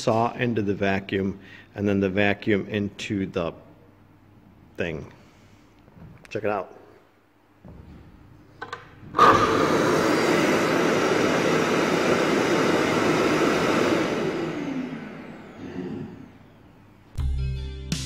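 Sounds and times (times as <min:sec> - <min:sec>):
shop vacuum running: 0:07.6 - 0:17.1.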